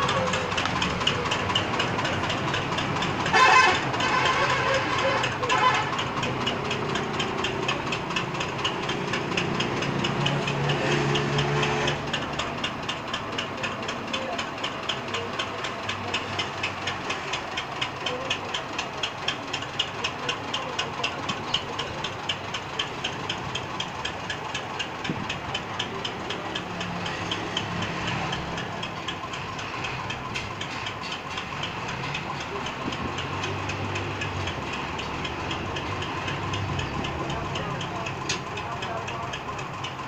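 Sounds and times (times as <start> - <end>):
tractor diesel engine puffing: 0.0 - 40.0.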